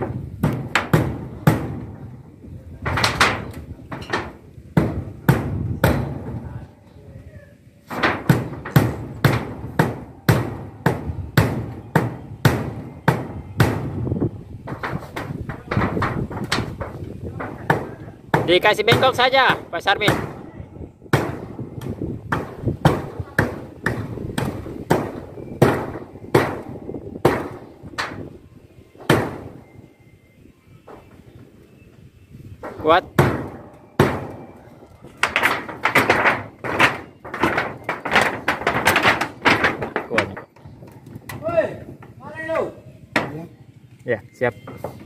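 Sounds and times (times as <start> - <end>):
hammering on sheet metal: 0.0 - 2.1, 2.8 - 6.4, 7.9 - 20.4, 21.1 - 28.4, 29.0 - 29.7, 32.6 - 34.6, 35.2 - 40.6.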